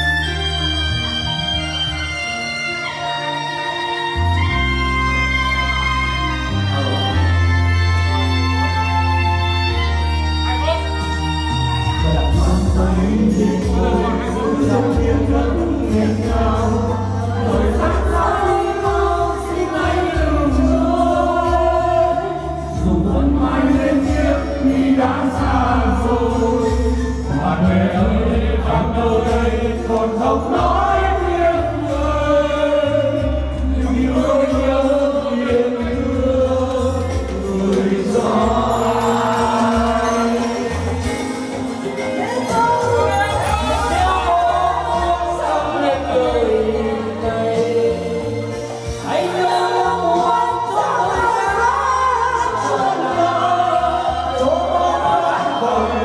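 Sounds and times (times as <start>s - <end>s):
amplified backing music with bass: 0.0s - 56.0s
group of people singing: 12.0s - 56.0s.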